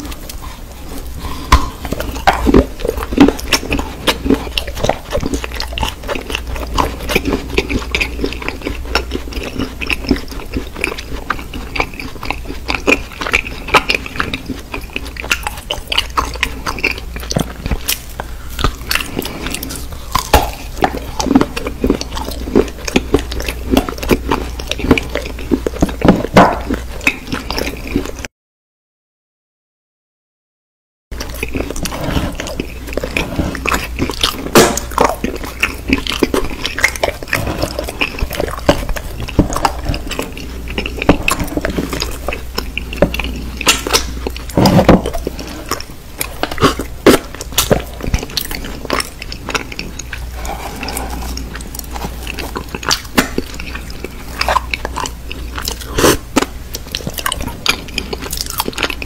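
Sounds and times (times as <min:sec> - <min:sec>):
crunchy biting and chewing: 0:00.0 - 0:28.3, 0:31.2 - 0:59.0
low steady hum: 0:00.0 - 0:28.3, 0:31.2 - 0:59.0
wet mouth sounds: 0:00.0 - 0:28.3, 0:31.2 - 0:59.0.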